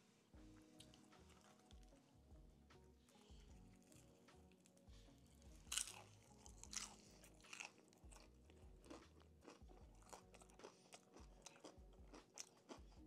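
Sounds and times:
chewing crispy chicken crunches: 5.7s - 13.0s.

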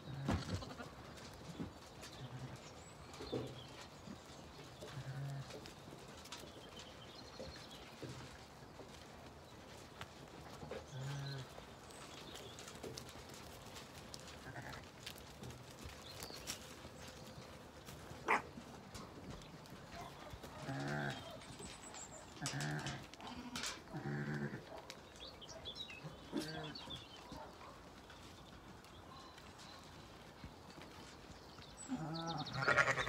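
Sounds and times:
hooves clicking on track: 0.4s - 33.0s
sheep bleating: 32.0s - 33.0s.

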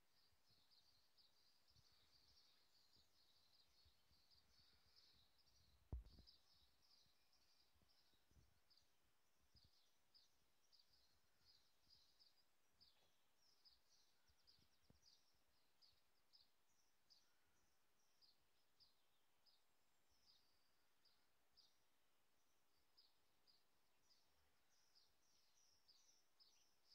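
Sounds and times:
birds chirping: 0.2s - 17.6s
low thump: 5.9s - 6.2s.

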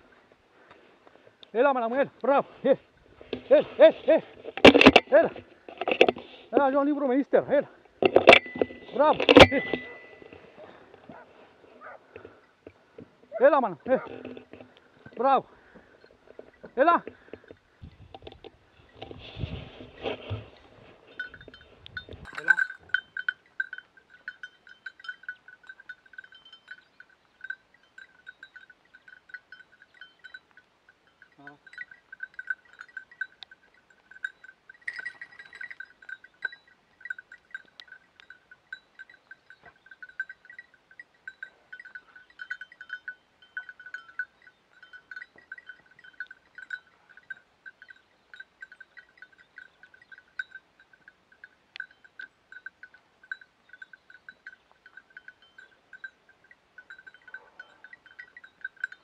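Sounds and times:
small bell tinkling: 8.0s - 10.8s, 20.6s - 59.0s.

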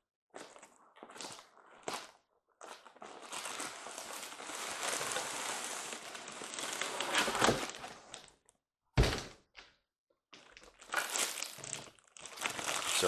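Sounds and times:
cardboard and plastic rustling: 2.9s - 8.3s, 10.6s - 13.0s.

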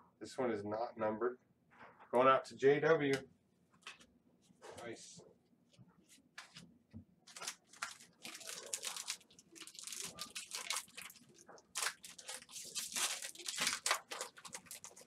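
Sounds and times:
foil wrappers crinkling: 7.3s - 15.0s.

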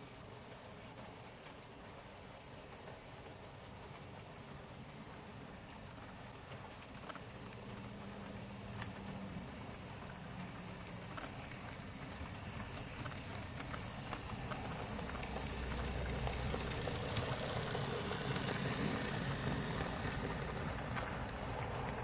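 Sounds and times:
model train coaches rumbling: 1.2s - 22.0s
wheels clicking over rail joints: 5.9s - 22.0s.

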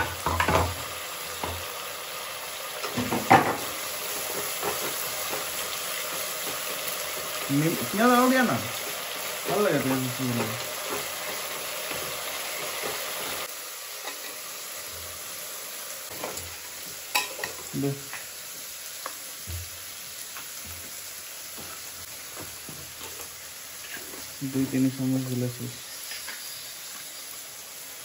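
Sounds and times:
food sizzling in oil: 0.0s - 28.0s.

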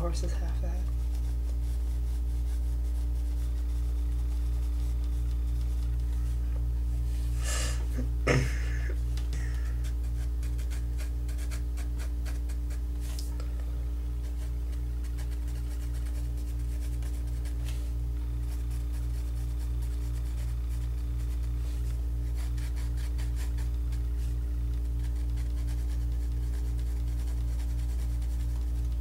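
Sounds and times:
pulsing low hum: 0.0s - 29.0s
pencil shading on paper: 0.9s - 6.1s, 9.5s - 12.8s, 14.2s - 17.8s, 18.4s - 29.0s.

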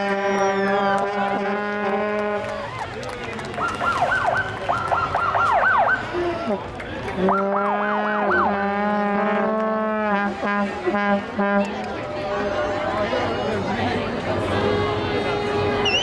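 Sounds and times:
police sirens: 0.0s - 9.2s.

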